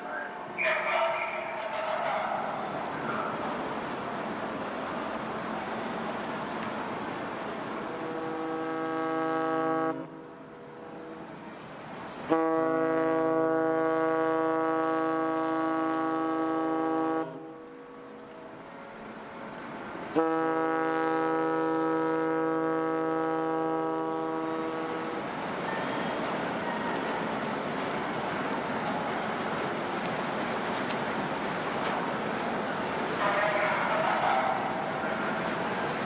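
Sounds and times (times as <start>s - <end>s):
ship whistle blasts: 8.0s - 10.2s, 12.3s - 17.6s, 20.1s - 25.1s.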